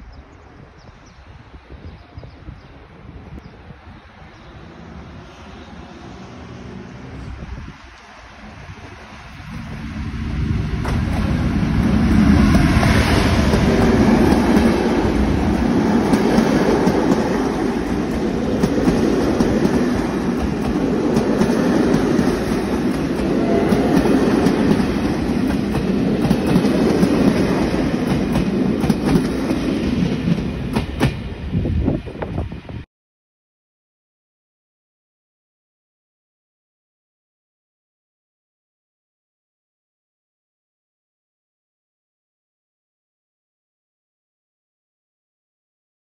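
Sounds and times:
train passing: 0.4s - 32.9s
train wheels clattering over rails: 10.8s - 31.4s.

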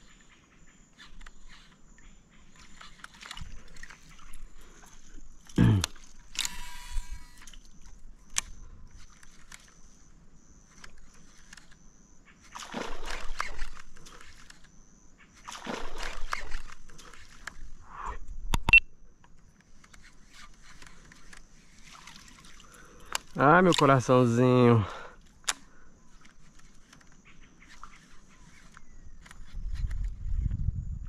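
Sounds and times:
water splashing and sloshing: 1.1s - 10.1s, 10.7s - 14.7s, 15.3s - 17.8s, 19.6s - 24.4s
sharp click: 18.5s - 18.8s.

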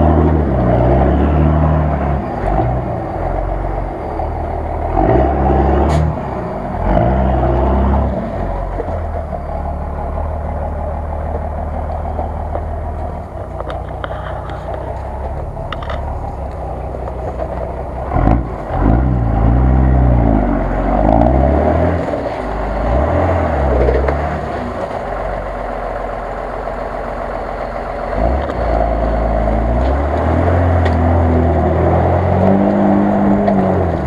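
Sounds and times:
engine revving hard: 0.0s - 8.7s, 18.0s - 24.8s, 28.1s - 34.0s.

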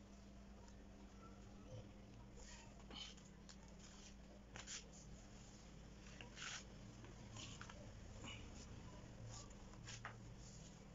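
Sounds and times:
low steady hum: 0.0s - 10.9s
sandals scuffing on concrete: 9.7s - 10.9s.

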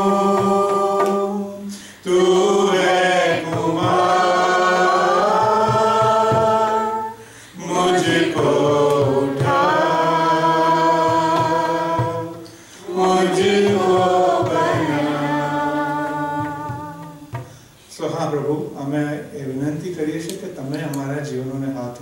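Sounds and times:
man singing a hymn unaccompanied: 0.0s - 17.4s.

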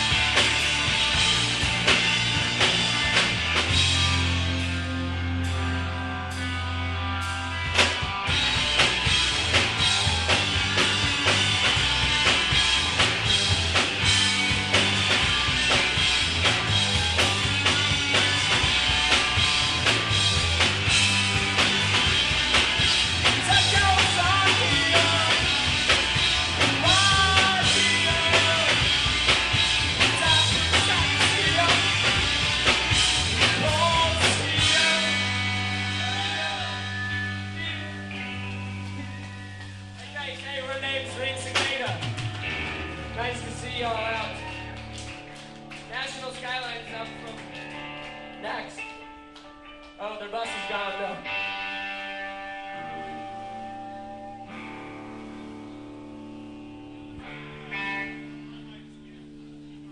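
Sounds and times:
rock band playing live: 0.0s - 59.9s
person singing: 23.3s - 25.6s, 26.6s - 29.0s, 30.0s - 32.1s, 33.5s - 37.2s
guitar chord ringing: 48.2s - 59.9s.

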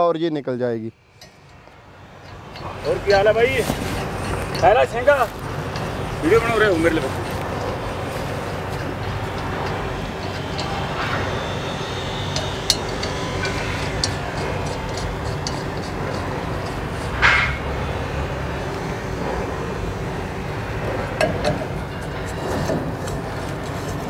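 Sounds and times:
metal scrape: 1.1s - 24.0s
metal nuts and bolts clinking: 1.2s - 17.6s.

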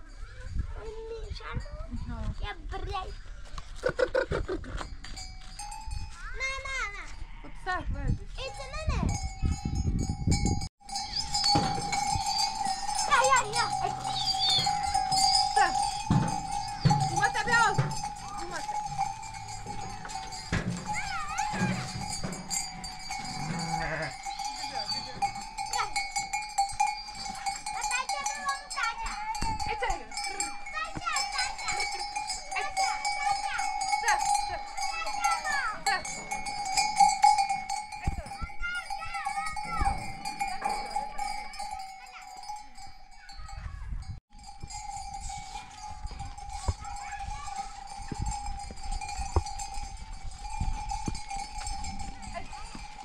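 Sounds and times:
sheep bells clanking: 4.7s - 53.0s
sheep bleating: 13.7s - 15.1s, 23.2s - 24.3s.

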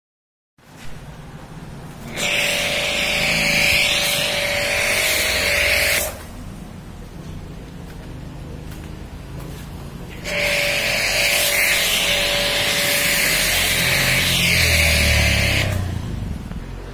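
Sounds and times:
foam spray gun hissing: 2.1s - 6.4s, 10.1s - 16.0s.

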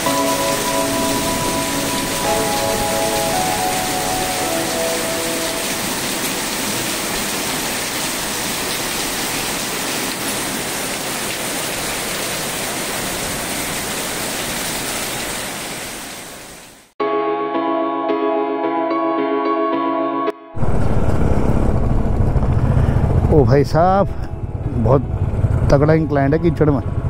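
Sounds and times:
background music: 0.0s - 6.7s, 17.0s - 20.6s
rushing hiss of falling water: 0.3s - 16.8s.

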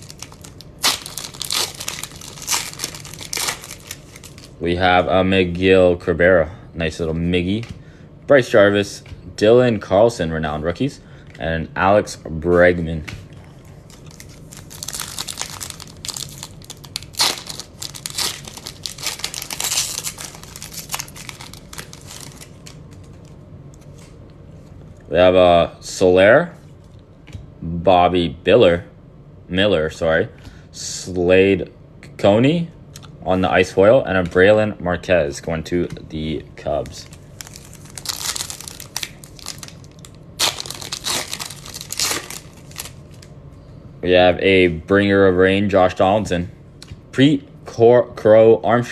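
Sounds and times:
foil wrapper crinkling and tearing: 0.0s - 4.6s, 13.9s - 23.2s, 37.0s - 43.3s.

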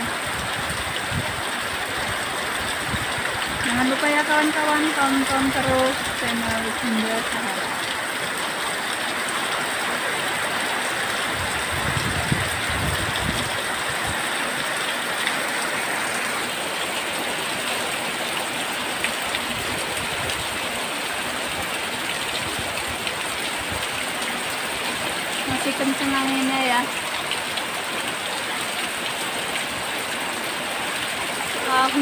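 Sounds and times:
low wind rumble: 0.0s - 7.0s, 11.1s - 14.6s
heavy rain pouring: 0.0s - 32.0s
strong wind gusting: 0.2s - 4.2s, 11.2s - 14.2s.

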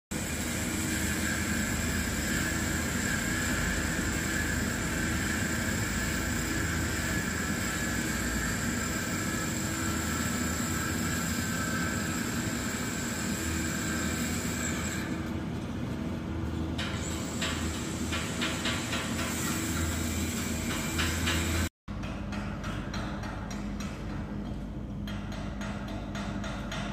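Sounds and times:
welder generator engine running: 0.1s - 21.7s
welding hiss: 0.2s - 15.2s, 16.8s - 21.7s.

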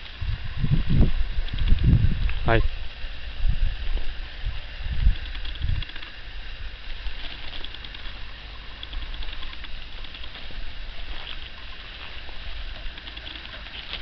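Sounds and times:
steady outdoor hiss: 0.0s - 14.0s
wind rumbling on microphone: 0.0s - 14.0s
dry stubble crackling: 5.0s - 14.0s.

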